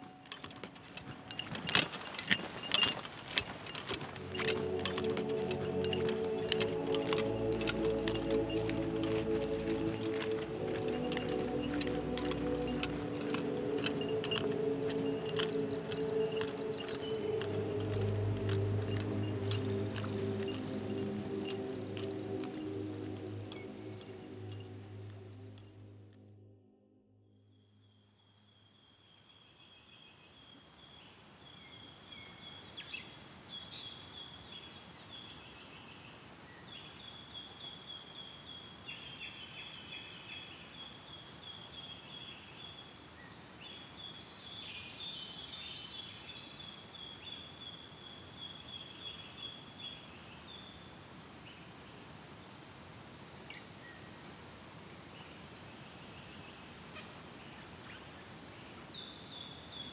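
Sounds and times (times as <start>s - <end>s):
steady outdoor hiss: 0.0s - 26.4s, 27.5s - 59.9s
birds chirping and trilling: 4.1s - 26.0s
thin high steady note: 4.1s - 26.8s.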